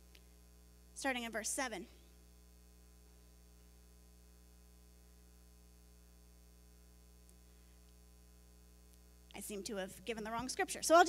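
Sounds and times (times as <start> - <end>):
faint low electrical hum: 0.0 - 11.0.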